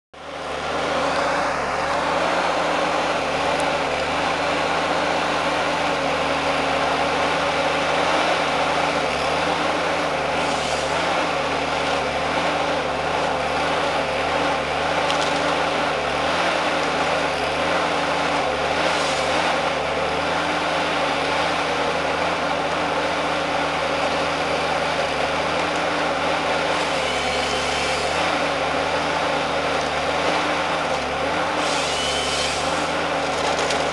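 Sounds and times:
diesel engine running: 0:00.2 - 0:33.9.

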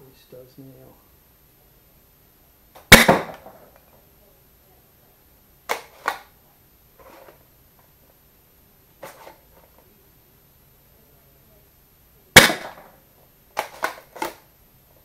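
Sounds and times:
toy blaster firing crack: 0:02.8 - 0:03.8, 0:05.7 - 0:06.3, 0:12.4 - 0:13.0, 0:13.6 - 0:14.4.

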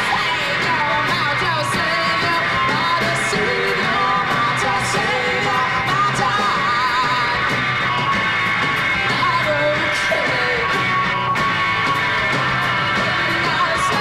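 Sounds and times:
woman singing into microphone: 0:00.0 - 0:07.6, 0:09.1 - 0:10.8, 0:13.0 - 0:14.0
drums: 0:00.0 - 0:14.0
electric guitar: 0:00.0 - 0:14.0.

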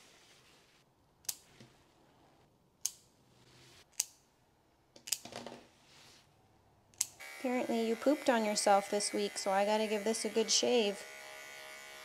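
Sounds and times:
nail clippers clicking: 0:06.9 - 0:07.2.

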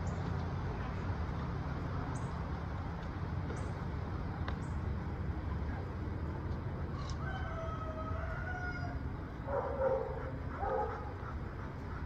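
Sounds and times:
low outdoor rumble: 0:00.0 - 0:12.0
dog barking: 0:09.5 - 0:11.2.

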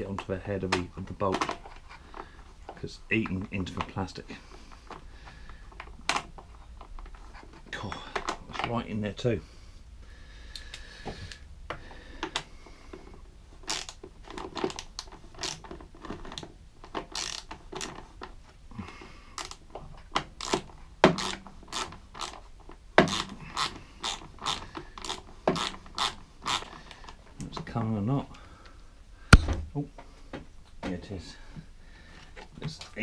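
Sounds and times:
hand ratchet clicking: 0:13.7 - 0:14.0, 0:17.1 - 0:18.0, 0:20.4 - 0:20.6, 0:21.2 - 0:22.4, 0:23.0 - 0:26.8.

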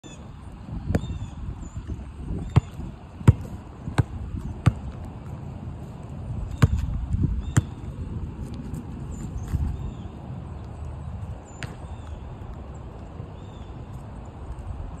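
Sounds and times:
basketball bouncing on asphalt: 0:00.8 - 0:12.7.

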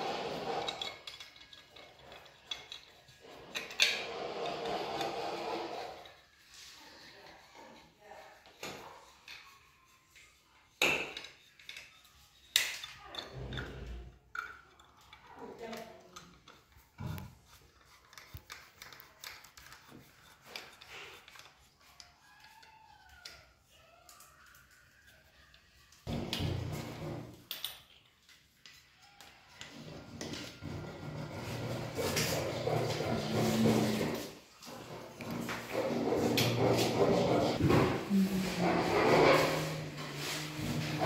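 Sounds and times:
screwdriver clicking and scraping: 0:00.1 - 0:06.6, 0:11.1 - 0:23.5.

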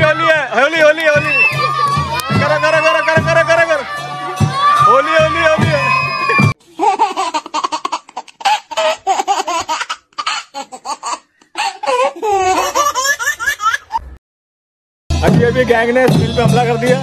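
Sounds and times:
child laughing: 0:06.3 - 0:14.2.

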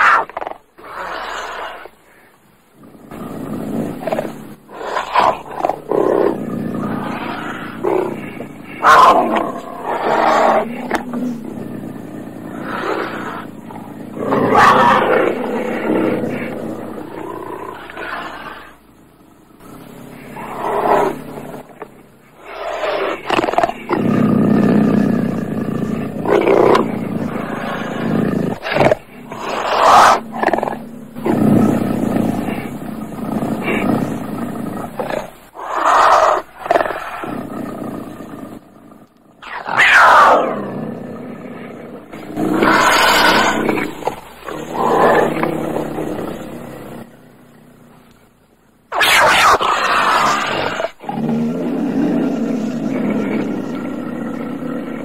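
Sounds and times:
cougar growling calls: 0:00.0 - 0:55.0
mountain lion roaring: 0:02.7 - 0:48.2, 0:48.9 - 0:55.0.

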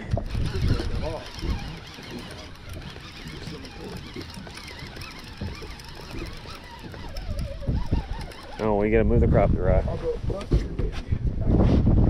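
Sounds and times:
fishing reel cranking whirr: 0:00.0 - 0:09.3.

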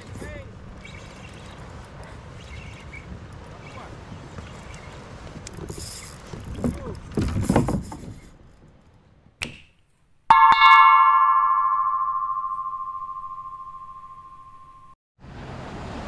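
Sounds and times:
bell chime ringing: 0:10.3 - 0:15.0.

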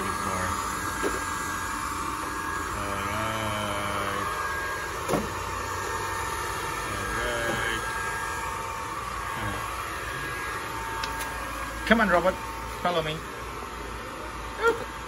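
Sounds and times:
robot vacuum whirring: 0:00.0 - 0:11.8.

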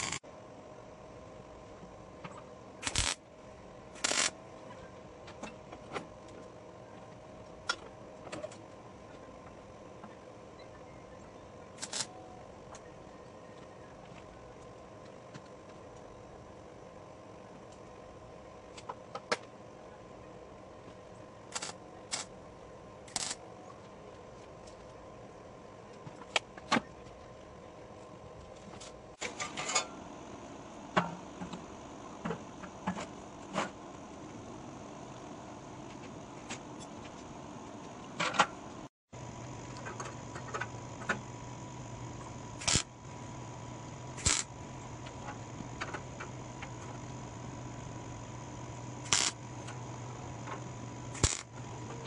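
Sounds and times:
welder tack welds: 0:00.0 - 0:00.2, 0:02.8 - 0:03.2, 0:03.9 - 0:04.4, 0:11.8 - 0:12.1, 0:21.5 - 0:22.3, 0:23.0 - 0:23.4, 0:39.6 - 0:52.0
faint steady hum: 0:00.0 - 0:52.0.

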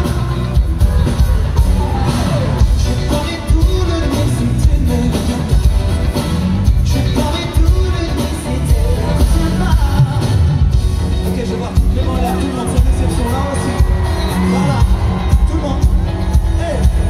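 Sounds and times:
disco-pop song through sound system: 0:00.0 - 0:17.0
heavy bass beat: 0:00.0 - 0:17.0
man singing: 0:00.0 - 0:17.0.

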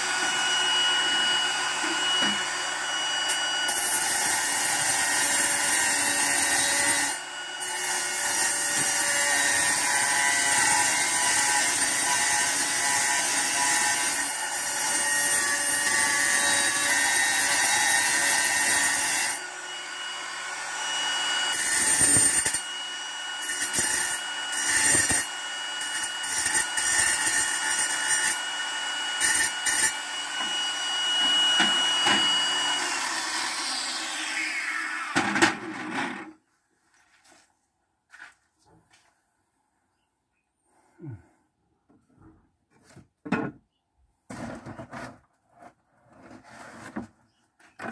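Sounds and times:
angle grinder cutting tile: 0:00.0 - 0:36.4.

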